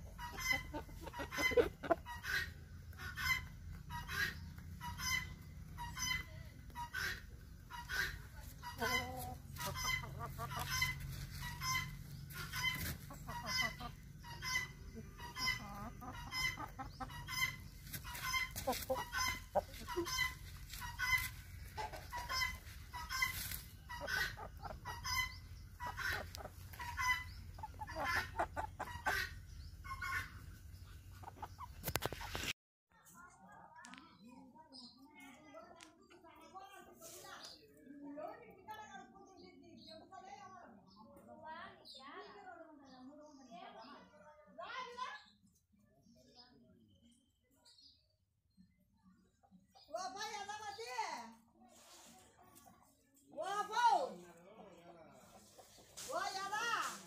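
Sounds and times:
chickens clucking: 0:00.0 - 0:32.6, 0:47.6 - 0:57.0.

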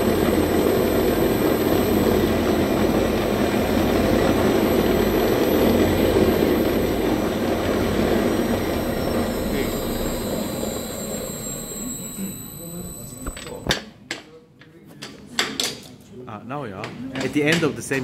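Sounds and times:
food processor whirring: 0:00.0 - 0:13.7.

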